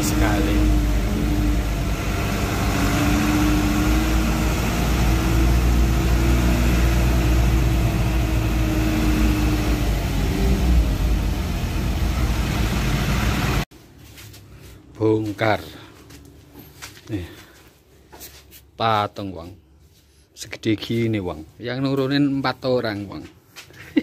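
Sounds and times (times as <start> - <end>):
faint drifting hum: 0.0 - 13.6
truck diesel engine rumbling: 0.0 - 13.7.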